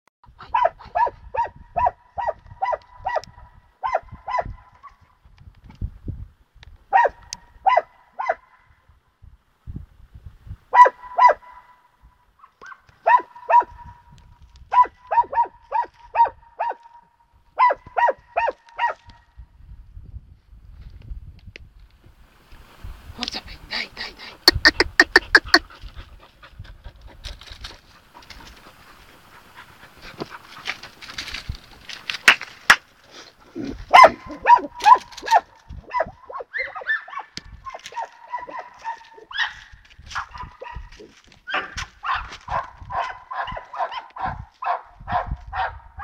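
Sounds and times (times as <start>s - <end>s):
hounds baying: 0.4s - 5.1s, 10.7s - 14.0s, 14.7s - 19.1s, 24.5s - 32.0s, 33.4s - 46.0s.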